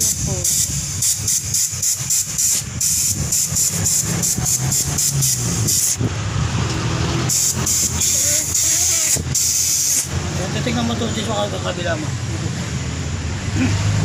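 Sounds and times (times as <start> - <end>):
compressed air hissing from hose: 0.0 - 6.1, 7.3 - 10.2.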